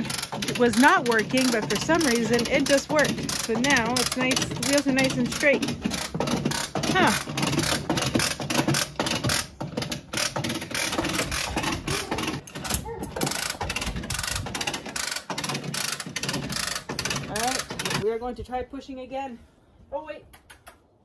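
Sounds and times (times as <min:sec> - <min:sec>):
ratchet clicking: 0:00.0 - 0:18.0.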